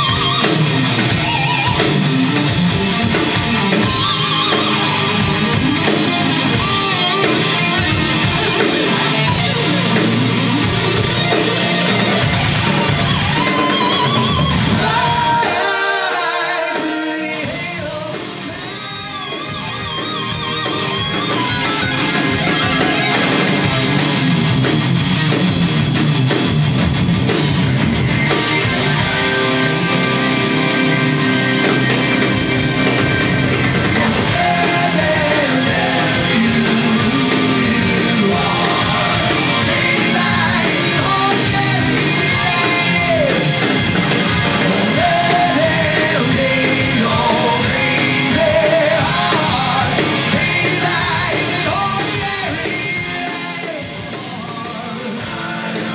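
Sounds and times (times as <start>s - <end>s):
rock band playing: 0.0s - 55.9s
lead vocal singing: 6.4s - 19.8s, 33.1s - 55.9s.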